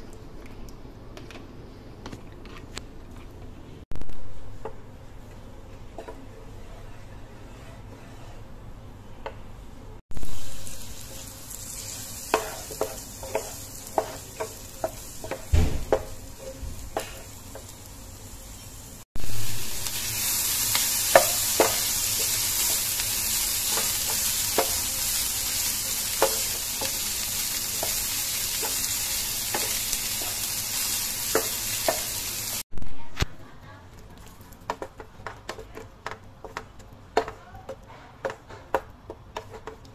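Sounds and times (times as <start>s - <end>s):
onion and meat sizzling: 10.1s - 33.1s
wooden spatula tapping pan: 34.7s - 39.9s.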